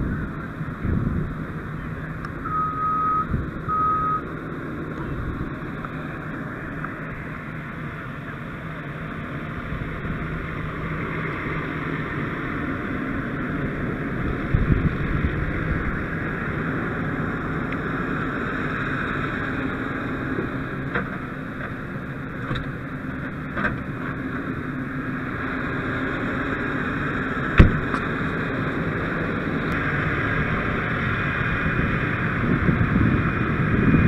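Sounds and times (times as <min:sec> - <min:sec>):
diesel engine running: 0:00.0 - 0:34.0
high electronic beeps: 0:02.4 - 0:04.3.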